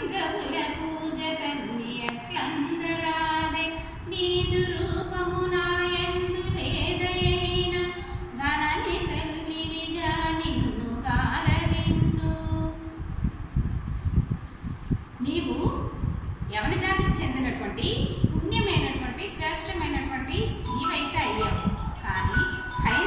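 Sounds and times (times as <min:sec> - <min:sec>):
woman singing unaccompanied: 0:00.0 - 0:13.0.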